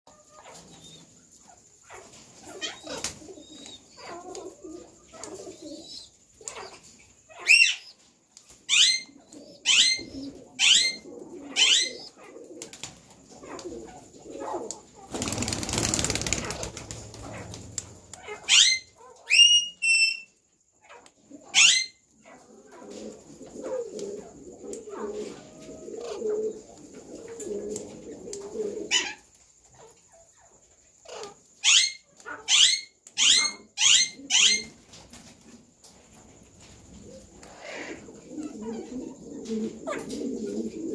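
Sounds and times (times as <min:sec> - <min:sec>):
parakeets screeching: 0:18.2 - 0:20.2.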